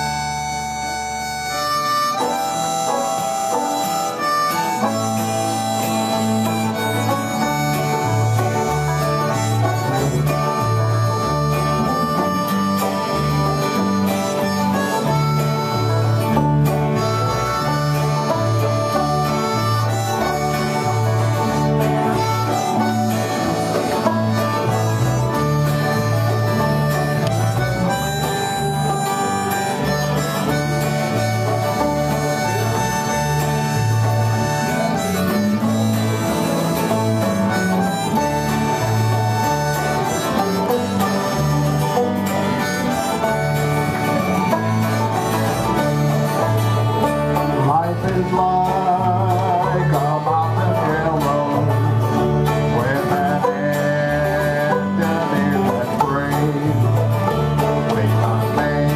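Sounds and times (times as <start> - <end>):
acoustic guitar strumming: 0.0 - 58.9
banjos picking: 0.0 - 58.9
bass guitar line: 0.0 - 58.9
harmonica melody: 0.0 - 58.9.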